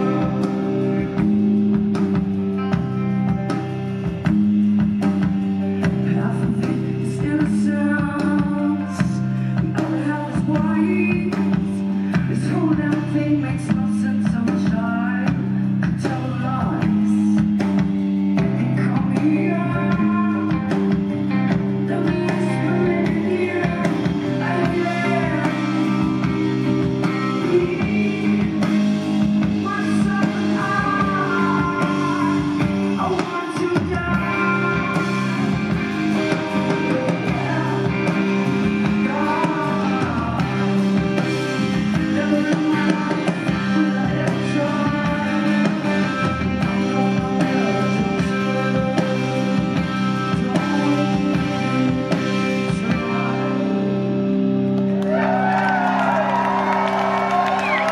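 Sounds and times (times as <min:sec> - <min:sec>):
drums: 0:00.0 - 0:57.9
electric guitar: 0:00.0 - 0:57.9
woman singing into a microphone: 0:06.0 - 0:17.6, 0:18.4 - 0:20.8, 0:21.7 - 0:53.9.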